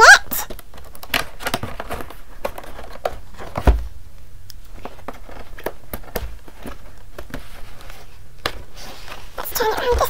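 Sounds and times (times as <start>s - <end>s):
cardboard box thump: 3.5s - 3.9s
hands tapping and rubbing cardboard: 4.8s - 10.0s.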